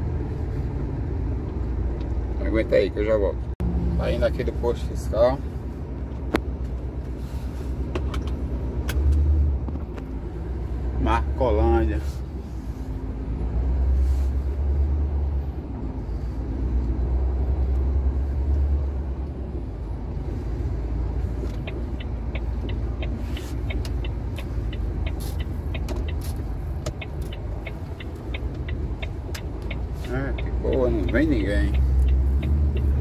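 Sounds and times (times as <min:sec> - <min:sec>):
truck engine rumbling: 0:00.0 - 0:33.0
light regular ticking: 0:20.8 - 0:33.0.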